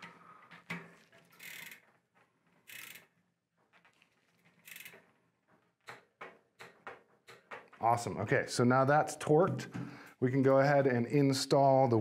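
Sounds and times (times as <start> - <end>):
torque wrench ratcheting: 1.4 - 1.8, 2.7 - 3.1, 4.6 - 5.0.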